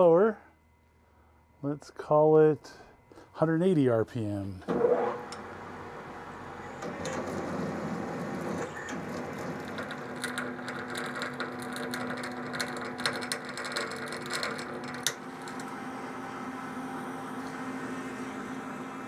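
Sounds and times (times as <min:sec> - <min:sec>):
lathe machine hum: 0:04.7 - 0:19.0.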